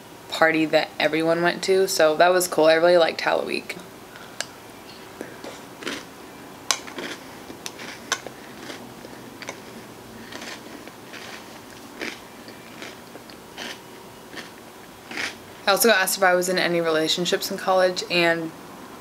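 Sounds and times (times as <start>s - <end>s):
chewing ice cream: 5.4s - 6.1s, 6.7s - 15.4s.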